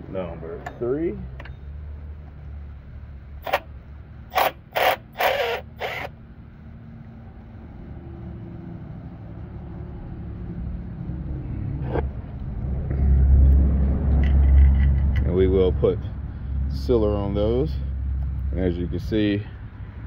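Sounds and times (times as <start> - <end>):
wrench clicking and scraping metal: 3.4 - 3.7, 4.3 - 6.1
low rumble: 6.4 - 20.0.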